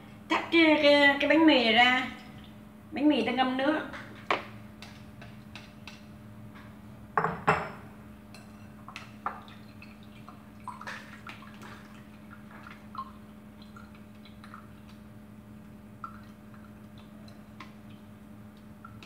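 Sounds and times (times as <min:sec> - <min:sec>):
water dripping into bowl: 0:08.4 - 0:19.0.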